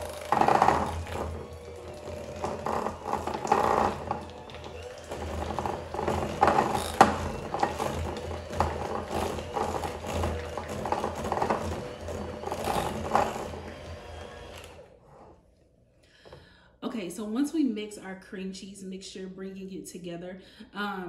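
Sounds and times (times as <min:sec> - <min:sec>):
mixer beaters clacking: 0:00.0 - 0:14.9
electric hand mixer running: 0:00.0 - 0:15.2.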